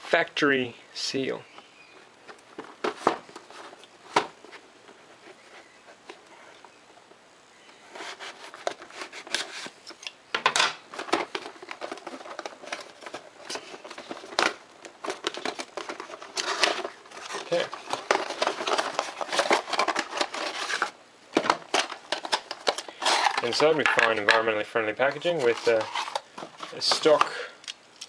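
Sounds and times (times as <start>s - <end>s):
cardboard box crackling: 10.9s - 24.4s, 25.1s - 27.3s.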